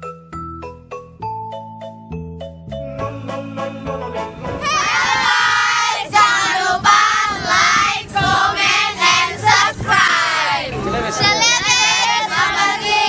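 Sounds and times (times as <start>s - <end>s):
girls singing together: 4.6s - 13.0s.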